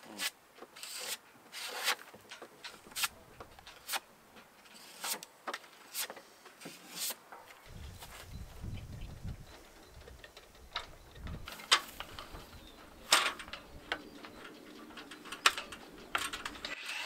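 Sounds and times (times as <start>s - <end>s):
filler knife scraping on wood: 0.1s - 2.1s.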